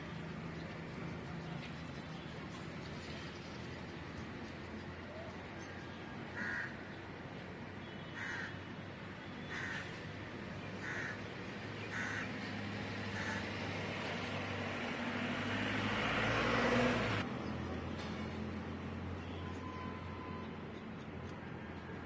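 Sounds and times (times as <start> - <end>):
crow cawing: 6.3 - 6.8, 8.2 - 8.6, 9.5 - 9.9, 10.8 - 11.2, 11.9 - 12.3, 13.1 - 13.5.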